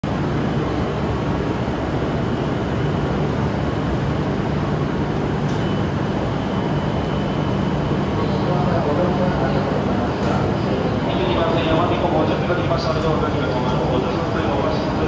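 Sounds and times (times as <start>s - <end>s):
trains humming and rumbling: 0.0s - 15.0s.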